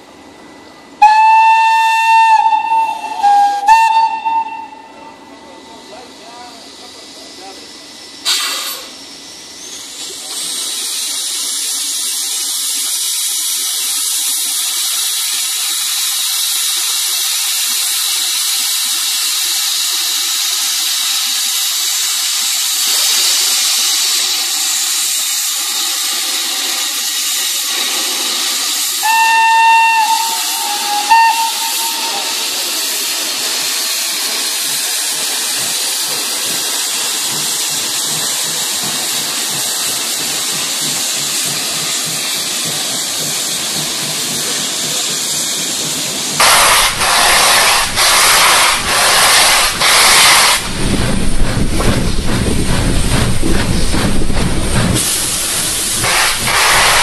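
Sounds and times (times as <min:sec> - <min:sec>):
steam locomotive hissing steam: 0:00.0 - 0:57.0
steam whistle blast: 0:01.0 - 0:05.2, 0:29.0 - 0:32.6.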